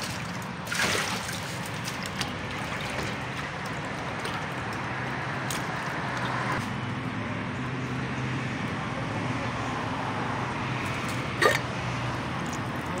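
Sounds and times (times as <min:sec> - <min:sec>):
low traffic hum: 0:00.0 - 0:13.0.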